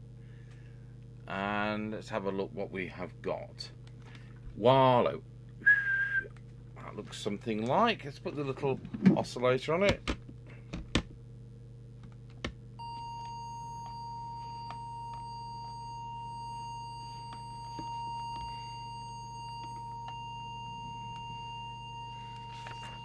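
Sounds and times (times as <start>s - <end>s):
steady test tone: 12.8s - 23.0s.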